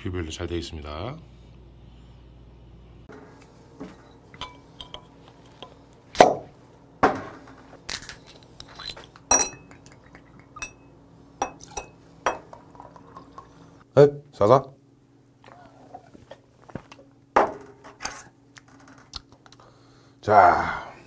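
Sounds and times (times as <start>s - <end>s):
glass bottle and glasses clinking: 9.3s - 9.8s, 10.6s - 12.6s.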